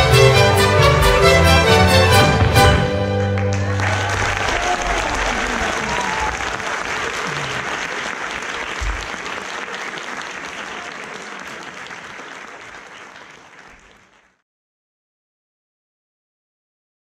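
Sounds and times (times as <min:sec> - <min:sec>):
low thud: 0:01.0 - 0:03.2
audience applauding: 0:01.0 - 0:14.4.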